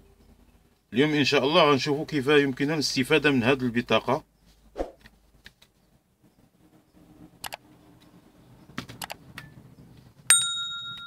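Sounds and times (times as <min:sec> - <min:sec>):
sharp mouse clicks: 0:07.4 - 0:07.6, 0:08.8 - 0:09.5
bright bell ding: 0:10.3 - 0:11.0.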